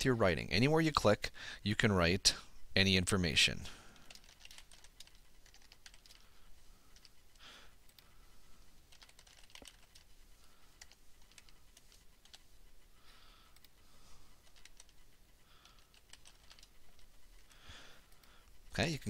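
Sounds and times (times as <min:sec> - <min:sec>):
typing on keyboard: 0:04.0 - 0:06.3, 0:08.9 - 0:10.1, 0:10.7 - 0:12.4, 0:14.4 - 0:15.0, 0:15.6 - 0:17.1.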